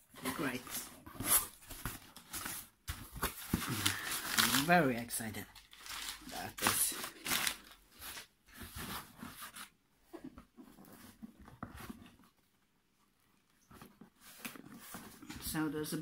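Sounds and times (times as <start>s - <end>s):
packing paper rustling and crinkling: 0.1s - 9.7s.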